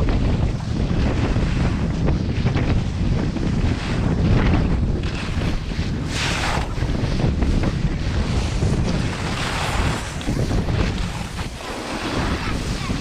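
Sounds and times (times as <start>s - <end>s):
wind buffeting microphone: 0.0s - 13.0s
ski edges scraping icy snow: 5.0s - 13.0s.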